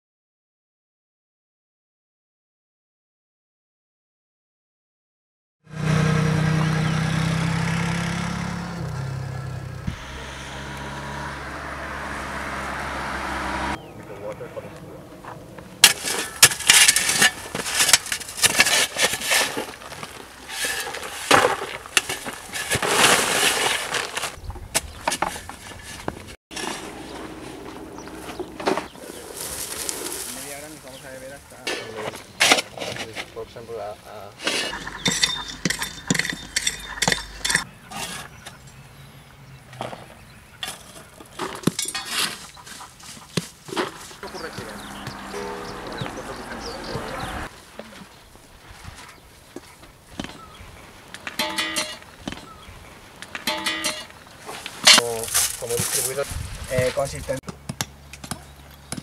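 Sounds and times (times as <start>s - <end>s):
gravel clattering into buckets: 15.8s - 24.4s, 34.4s - 38.2s, 53.3s - 57.4s
hand tools scraping sediment: 15.8s - 24.4s, 34.4s - 38.4s, 40.6s - 45.4s
shovels scraping stony earth: 15.8s - 33.4s, 34.4s - 38.6s, 39.8s - 50.5s, 51.1s - 52.6s, 53.2s - 57.4s.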